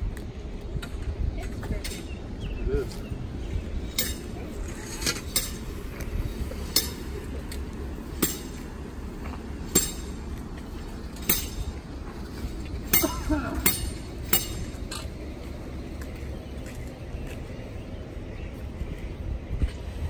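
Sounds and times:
low steady rumble: 0.0 - 20.0
metal poles clinking on pavement: 0.8 - 2.2, 3.7 - 17.5.

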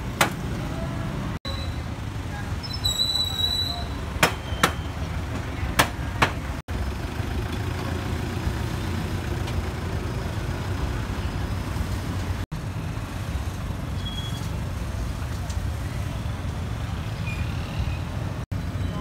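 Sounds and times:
street traffic rumble: 0.0 - 19.0
sharp knocks: 4.2 - 4.8.

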